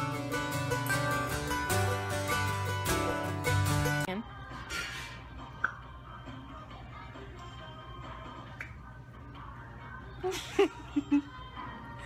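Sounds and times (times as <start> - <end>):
plucked string music: 0.0 - 4.2.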